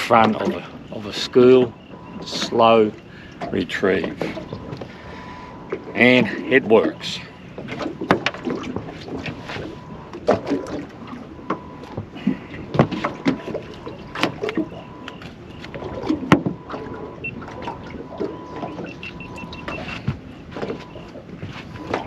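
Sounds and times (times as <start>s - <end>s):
faint steady whine: 0.0s - 22.0s
quick high beeps: 18.3s - 20.0s.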